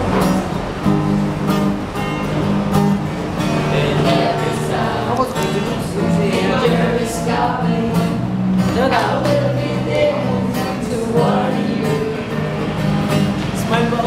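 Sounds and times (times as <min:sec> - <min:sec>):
acoustic guitar strumming chords: 0:00.0 - 0:14.0
group of voices singing: 0:03.5 - 0:12.9.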